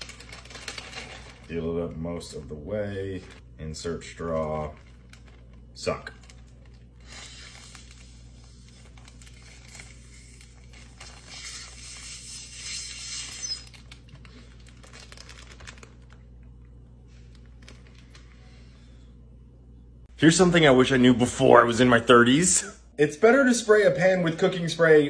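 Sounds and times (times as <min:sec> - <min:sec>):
plastic bag crinkling: 0:00.0 - 0:18.6
suction hiss through straw: 0:07.0 - 0:08.8, 0:11.2 - 0:13.7.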